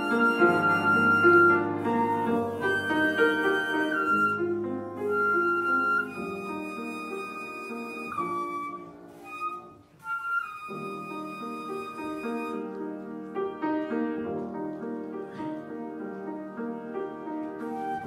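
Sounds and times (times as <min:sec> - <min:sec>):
flute playing slow melody: 0:00.0 - 0:13.2, 0:17.2 - 0:18.0
piano accompaniment: 0:00.0 - 0:18.0.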